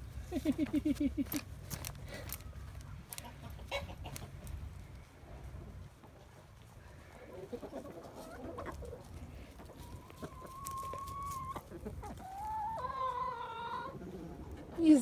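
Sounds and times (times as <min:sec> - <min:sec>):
chickens clucking: 0:00.0 - 0:15.0
long drawn-out chicken call: 0:09.7 - 0:14.0.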